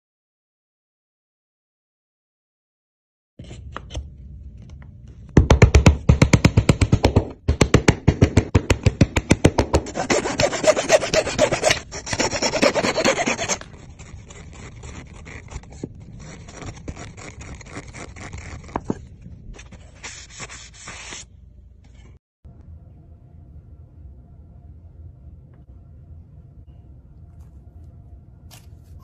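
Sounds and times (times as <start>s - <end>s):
steel blade scraping wood: 9.9s - 19.0s
wood rubbing on wooden joint: 9.9s - 19.0s.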